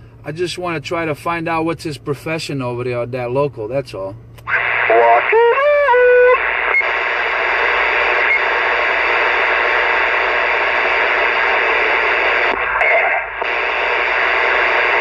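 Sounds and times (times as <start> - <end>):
radio static hiss: 4.4 - 15.0.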